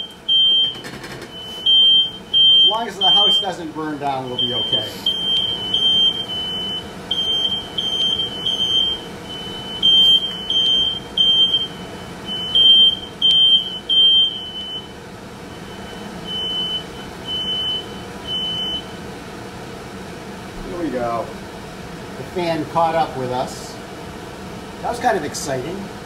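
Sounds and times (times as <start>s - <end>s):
smoke alarm beeping: 0.0s - 3.6s, 4.3s - 19.0s.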